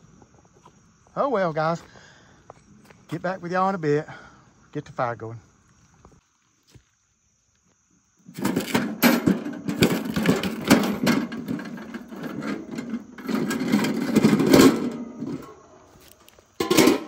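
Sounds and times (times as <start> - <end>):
grill parts rattling and clanking: 8.3 - 15.8, 16.6 - 17.0.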